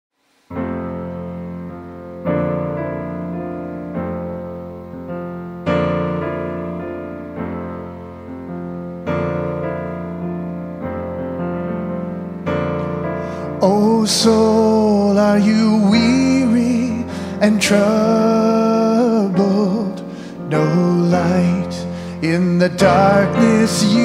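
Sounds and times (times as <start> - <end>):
slow solo piano chords: 0.5 - 24.0.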